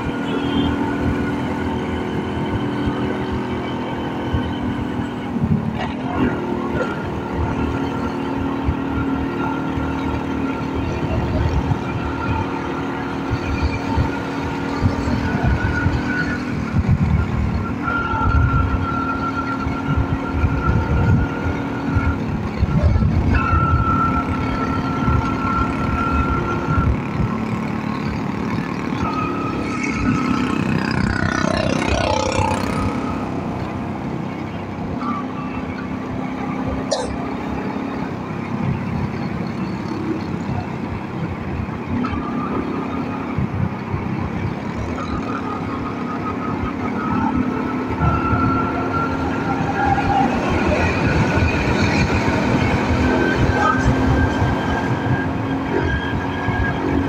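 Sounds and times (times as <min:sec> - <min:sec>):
motorcycle engine running: 0:00.0 - 0:57.0
wind rumbling on microphone: 0:13.3 - 0:18.9, 0:19.8 - 0:27.9.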